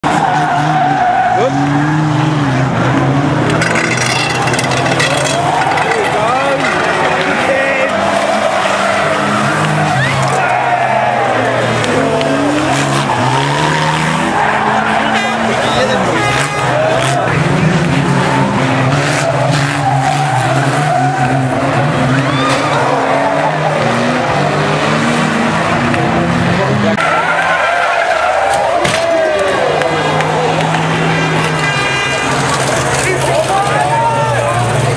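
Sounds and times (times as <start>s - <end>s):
racing car engines revving: 0.0s - 34.9s
tyres squealing: 3.1s - 17.5s
rough crackling noise: 3.5s - 8.4s.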